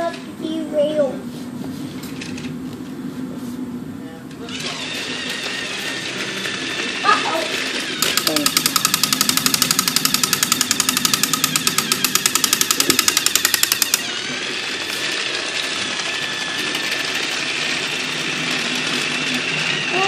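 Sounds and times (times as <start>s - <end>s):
toy train motor whine: 4.4s - 20.0s
fast even clicking: 8.0s - 14.2s.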